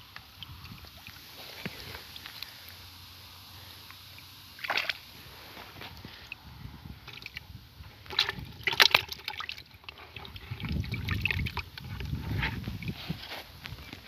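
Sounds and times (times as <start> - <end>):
water splashing in a bucket: 0.3 - 2.4, 4.1 - 5.5, 7.0 - 14.0
low rumbling handling noise: 9.8 - 14.0.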